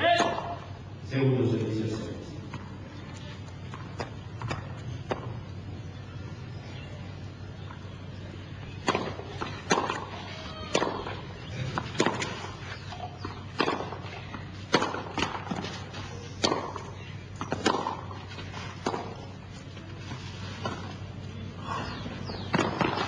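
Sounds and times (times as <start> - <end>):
tennis ball hit by rackets: 0.1 - 0.6, 3.7 - 5.4, 8.8 - 19.3, 22.2 - 23.0.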